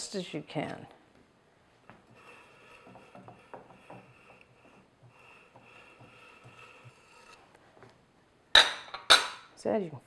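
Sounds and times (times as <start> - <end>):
spatula scraping frosting: 2.0 - 7.4.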